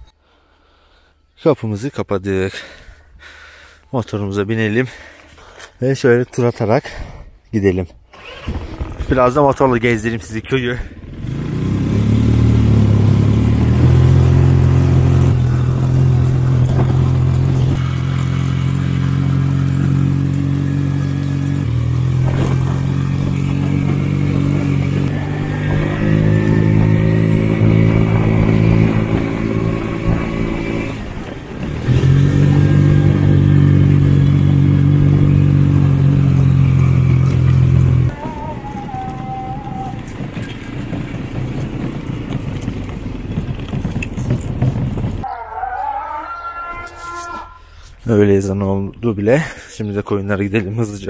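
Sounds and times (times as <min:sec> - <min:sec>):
motorbike engine running: 0:10.8 - 0:45.3.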